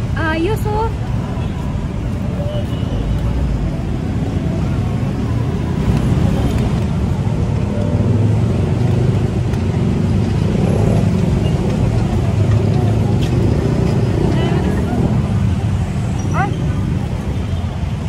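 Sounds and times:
passing vehicles rumbling: 0.0s - 18.0s.

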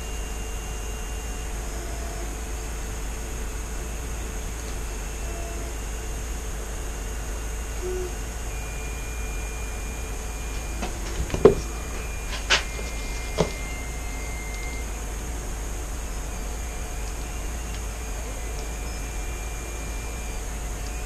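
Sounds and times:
room hum and hiss: 0.0s - 21.0s
light knocks and taps: 10.8s - 11.7s.

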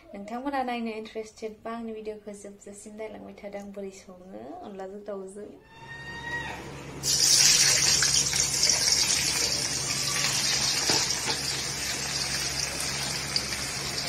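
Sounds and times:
onions sizzling in hot oil: 7.0s - 14.0s.

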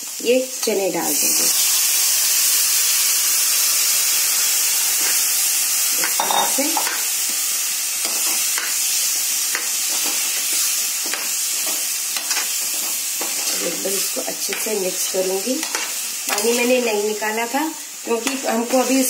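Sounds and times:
chickpeas sizzling in a pan: 0.0s - 19.0s
metal spatula scraping a pan: 15.6s - 16.8s.

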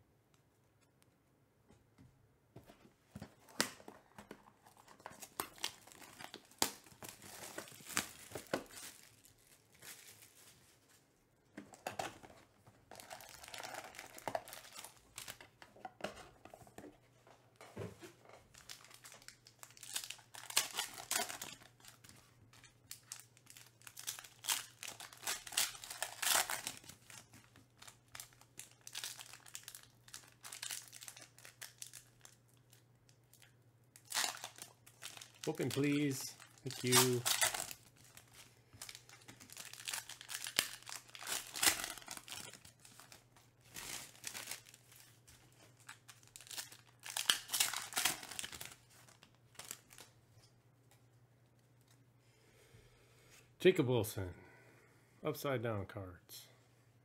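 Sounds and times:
foil wrappers crinkling: 4.4s - 11.1s, 11.8s - 15.6s, 18.3s - 50.2s
foil pack tearing open: 18.6s - 22.0s, 22.9s - 27.3s, 34.0s - 38.2s, 38.8s - 44.8s, 45.8s - 50.0s.

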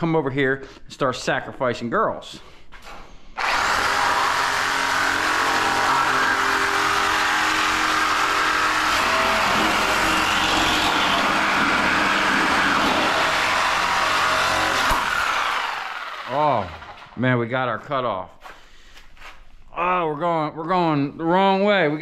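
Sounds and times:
reciprocating saw cutting metal: 3.4s - 17.2s.

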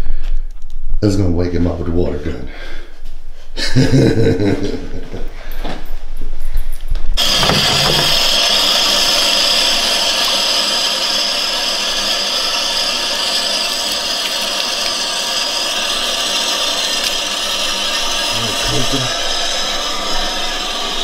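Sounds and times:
faucet water splashing into tub: 7.2s - 19.5s.

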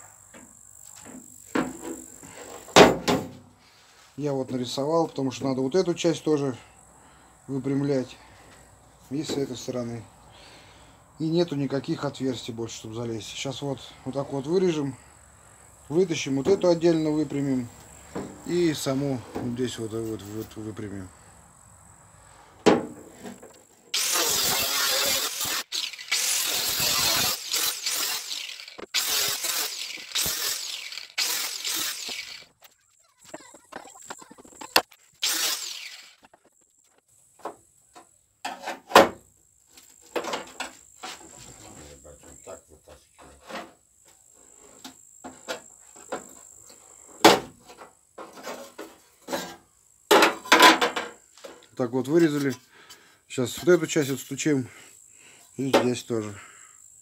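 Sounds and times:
angle grinder cutting sheet metal: 23.9s - 32.6s, 35.2s - 36.4s.

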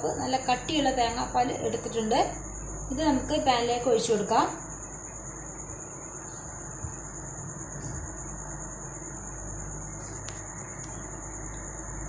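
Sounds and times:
insect trilling: 0.0s - 12.0s.

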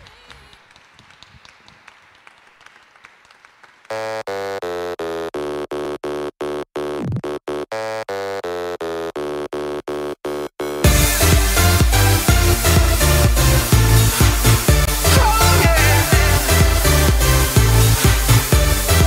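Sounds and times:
faint stage room sound: 0.0s - 3.9s
stuttering electronic dance music: 3.9s - 19.0s.

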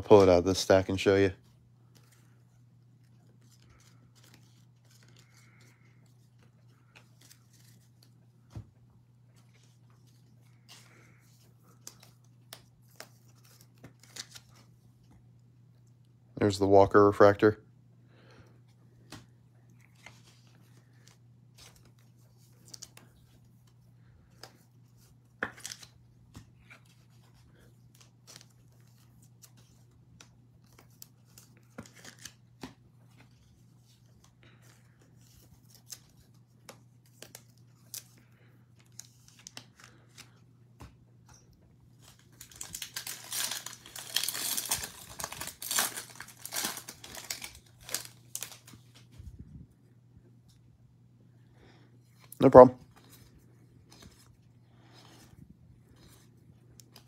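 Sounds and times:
faint low hum: 0.0s - 57.0s
card pack wrapper tearing: 42.0s - 48.8s.

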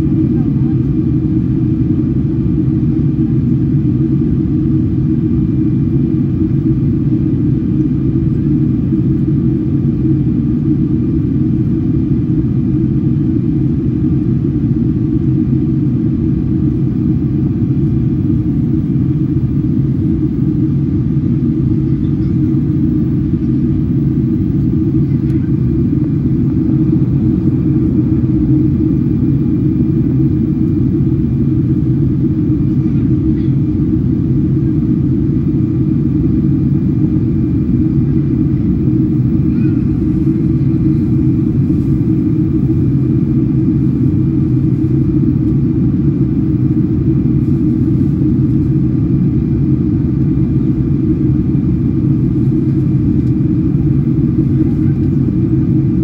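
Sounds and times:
airplane cabin rumble: 0.0s - 56.0s.

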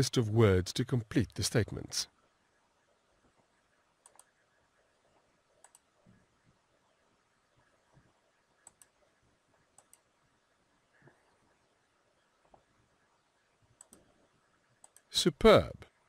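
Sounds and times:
computer mouse clicks: 4.0s - 4.4s, 5.6s - 5.9s, 8.6s - 9.0s, 9.7s - 10.1s, 13.8s - 14.2s, 14.8s - 15.1s.

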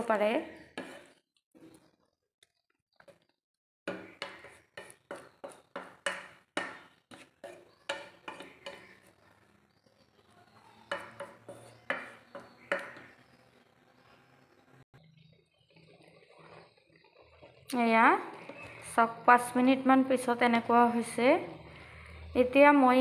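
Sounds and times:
wooden spatula scraping a pan: 0.6s - 2.0s, 3.9s - 9.3s, 10.8s - 13.4s, 15.5s - 19.6s.

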